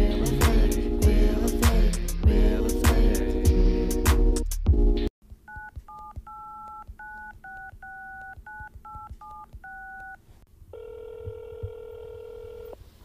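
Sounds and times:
touch-tone keypad beeps: 5.5s - 10.2s
telephone line tone: 9.0s - 12.8s.

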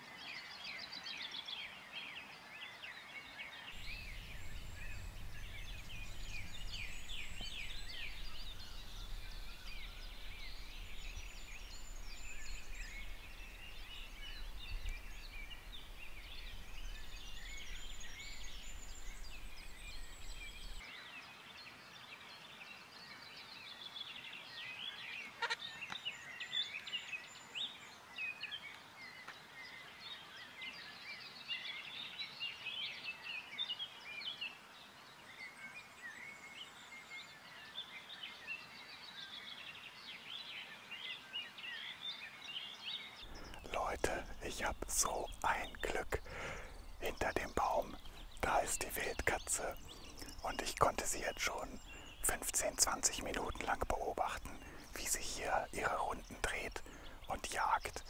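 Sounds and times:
songbirds chirping and trilling: 0.0s - 58.0s
low rumble: 3.8s - 20.8s.

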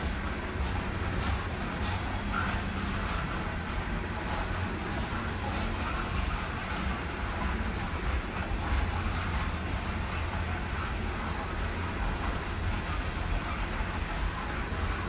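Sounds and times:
freight train wheels rumbling on rail: 0.0s - 15.0s.

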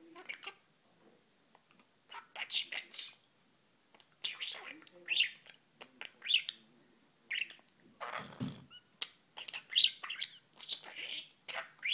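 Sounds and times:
budgerigar chattering: 4.2s - 6.6s, 7.3s - 11.9s.

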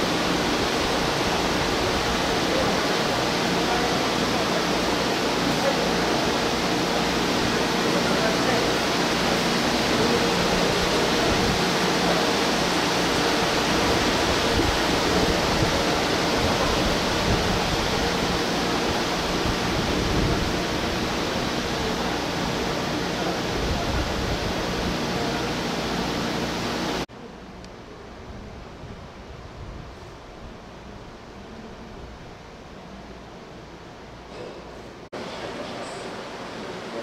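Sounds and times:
electric train equipment rushing: 0.0s - 27.1s.

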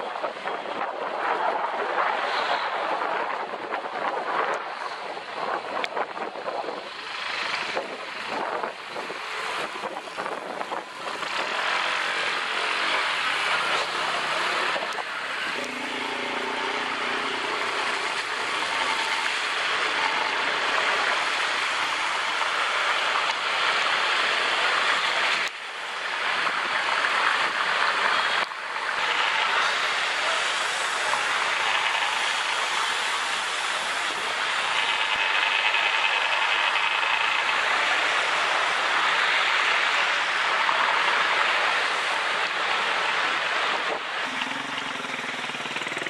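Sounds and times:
wind on microphone: 0.0s - 28.6s
tyres spraying water: 6.9s - 46.0s.

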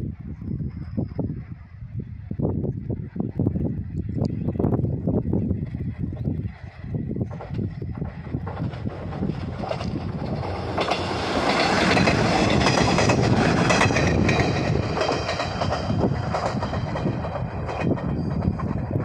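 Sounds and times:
train running noise: 0.0s - 19.0s
train wheels clattering: 7.3s - 19.0s.

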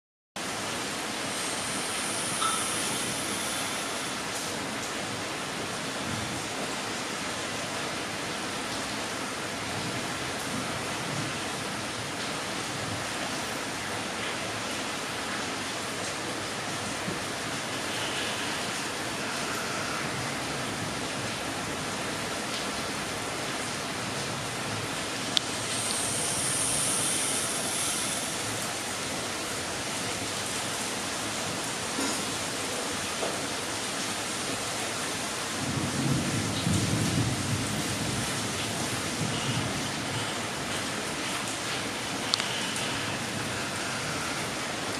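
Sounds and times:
steady hiss: 0.4s - 8.6s, 11.0s - 35.6s, 38.0s - 44.9s
faint tick: 42.3s - 42.5s.

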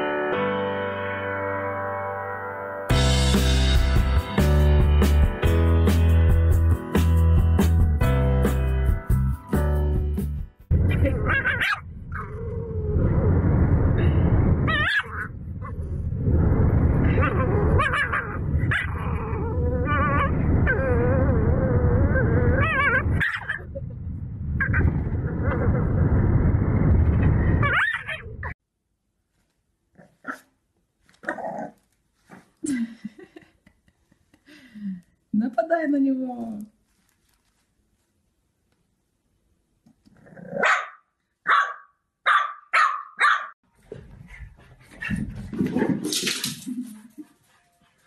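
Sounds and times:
rough low noise: 10.7s - 29.1s
puppy barking: 11.3s - 11.8s, 14.8s - 15.3s, 23.2s - 23.7s, 40.6s - 43.6s
puppy growling: 17.0s - 23.7s.

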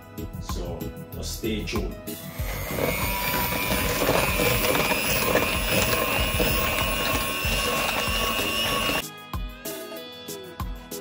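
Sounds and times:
electric hand mixer whipping cream: 2.2s - 9.0s.

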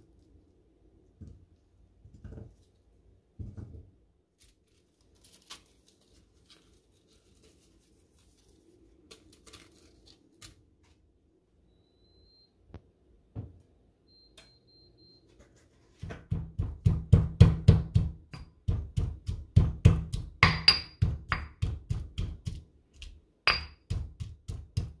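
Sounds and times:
soft thumps: 3.4s - 3.9s.

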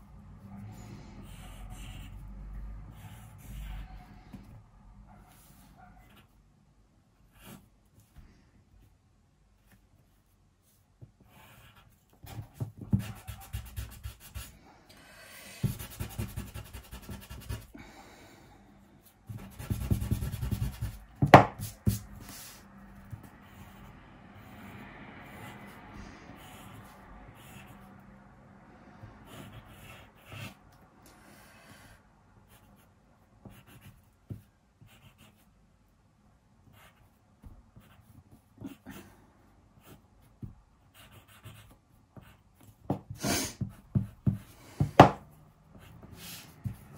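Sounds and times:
pencil scratching on paper: 0.4s - 2.3s, 2.9s - 4.5s, 7.3s - 7.7s, 9.7s - 14.6s, 15.6s - 17.7s, 19.0s - 24.6s, 25.2s - 25.7s, 26.4s - 28.0s, 29.2s - 30.6s, 32.4s - 35.4s, 36.7s - 39.1s, 39.8s - 46.9s.

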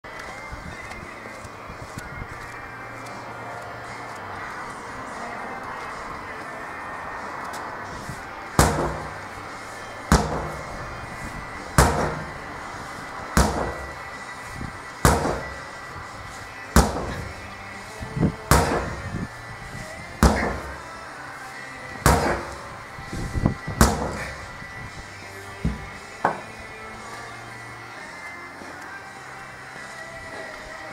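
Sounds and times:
sledgehammer striking rubber tyre: 8.5s - 9.4s, 10.1s - 10.8s, 11.8s - 12.5s, 13.4s - 14.1s, 15.0s - 15.7s, 16.7s - 17.4s, 18.4s - 19.2s, 20.2s - 20.9s, 21.9s - 22.8s, 23.7s - 24.5s, 25.6s - 26.5s.

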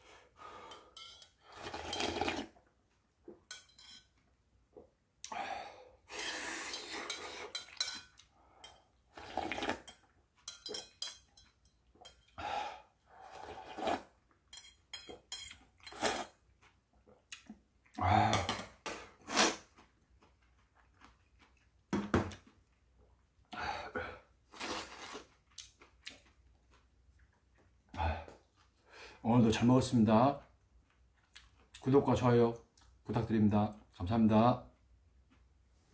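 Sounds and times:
chopsticks clinking on metal bowl: 0.7s - 2.2s, 3.5s - 4.1s, 6.7s - 8.8s, 9.9s - 12.4s, 14.5s - 16.1s
bowl clattering: 9.6s - 12.4s.

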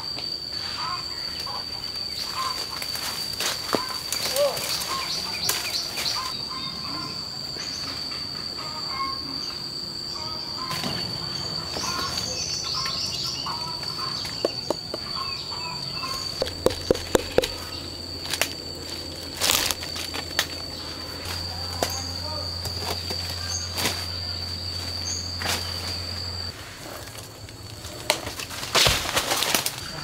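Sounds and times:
insects trilling: 0.0s - 30.0s
bird chirps: 11.6s - 18.2s
sharp clicks or knocks: 16.4s - 17.6s.

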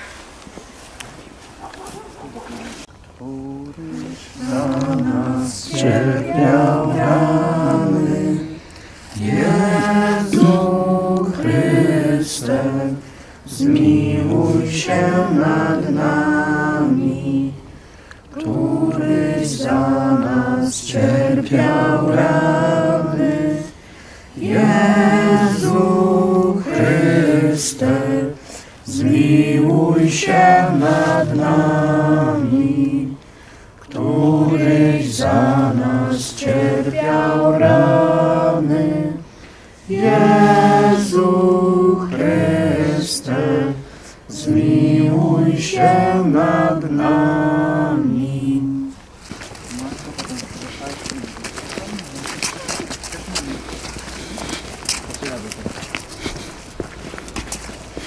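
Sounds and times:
group singing a hymn unaccompanied: 3.8s - 49.3s.

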